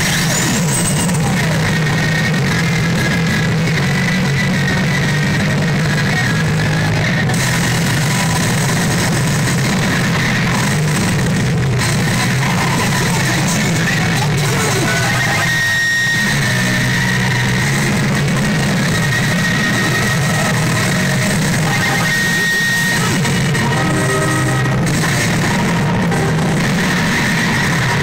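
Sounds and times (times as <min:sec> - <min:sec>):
pachinko machine effect sounds: 0:00.0 - 0:01.5, 0:20.1 - 0:28.0
loud rock music: 0:00.0 - 0:28.0.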